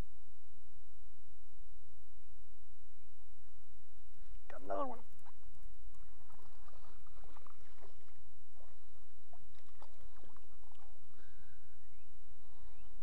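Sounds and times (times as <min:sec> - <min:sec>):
fish splashing at surface: 0:06.0 - 0:08.8, 0:09.5 - 0:10.9.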